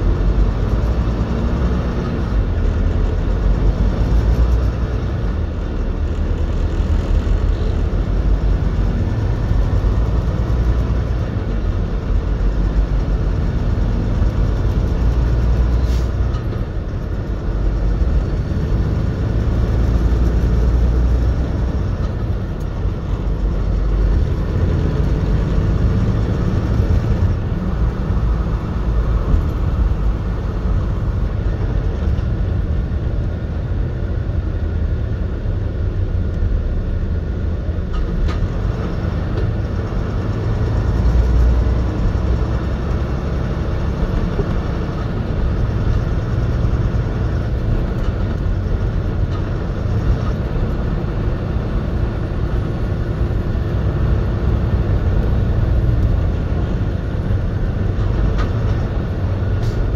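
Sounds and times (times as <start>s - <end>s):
truck engine and tyres droning: 0.0s - 59.9s.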